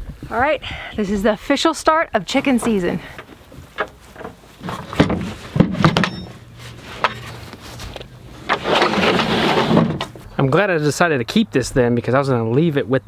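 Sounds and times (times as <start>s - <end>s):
wooden box knocks and thumps: 3.6s - 6.2s.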